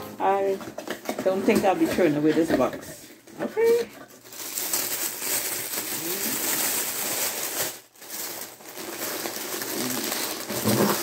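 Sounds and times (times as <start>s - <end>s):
packaging wrap rustling: 2.7s - 11.0s.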